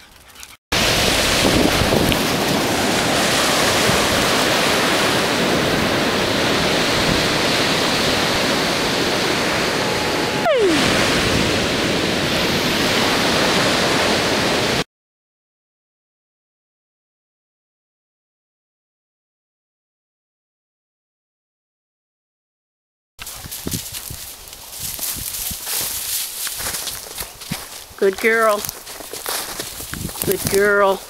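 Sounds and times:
ocean surf: 0.8s - 14.8s
wind buffeting microphone: 0.8s - 14.8s, 23.3s - 31.0s
tone sliding down in pitch: 9.6s - 11.0s.

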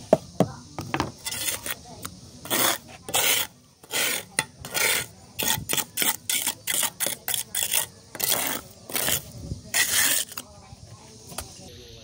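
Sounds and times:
trowel scraping wet mortar: 1.0s - 10.5s.

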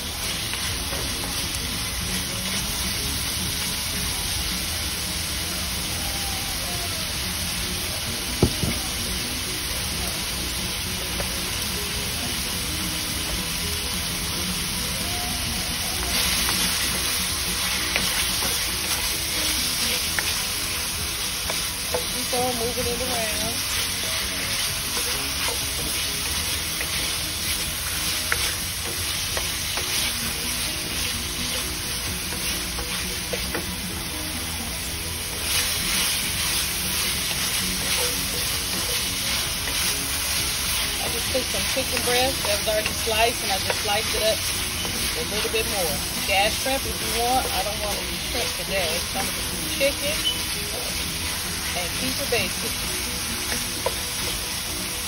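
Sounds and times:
chicken sizzling in a wok: 0.0s - 55.0s
wooden spoon scraping: 16.0s - 33.8s, 35.3s - 54.4s.

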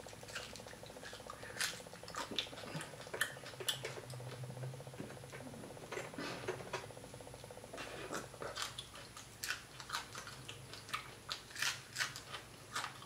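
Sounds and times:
soft chewing: 0.0s - 13.0s.

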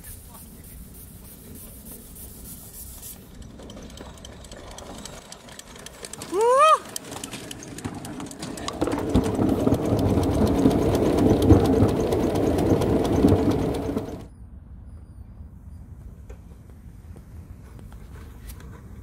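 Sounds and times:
miniature steam locomotive running: 0.0s - 14.3s.

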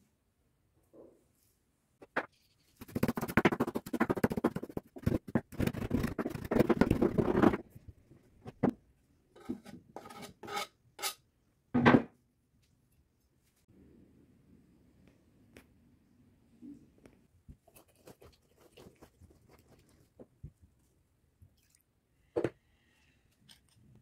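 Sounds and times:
knife scraping into glass bowl: 9.4s - 11.2s.

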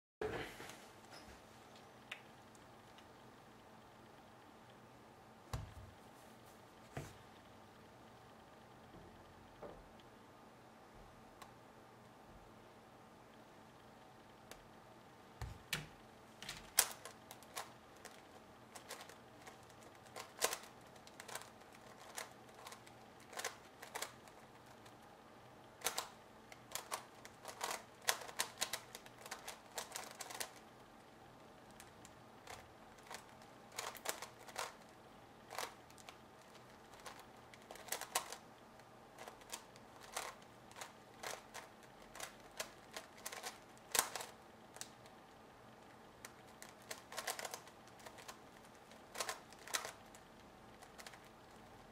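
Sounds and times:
puzzle cube plastic clicking: 15.4s - 30.8s, 31.7s - 51.9s.

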